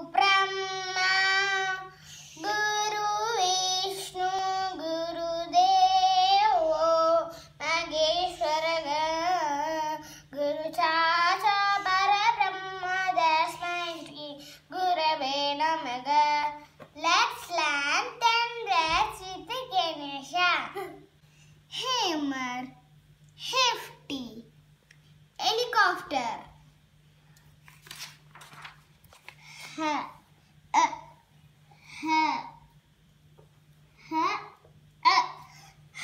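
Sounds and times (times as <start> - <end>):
girl singing unaccompanied: 0.0 - 20.9
faint low hum: 0.0 - 36.0.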